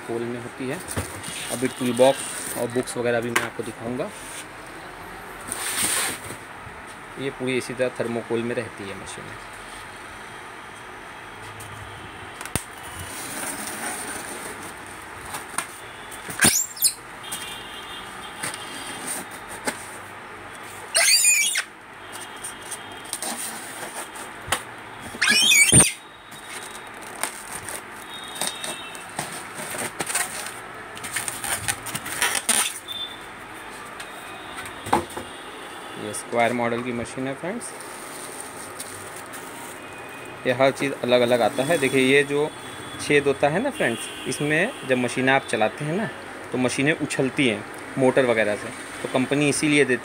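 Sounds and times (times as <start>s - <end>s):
polystyrene case scraping and creaking: 13.0s - 14.8s, 25.1s - 32.8s
foam squeaking: 16.4s - 17.0s, 20.9s - 21.7s, 25.1s - 26.7s, 31.3s - 33.2s.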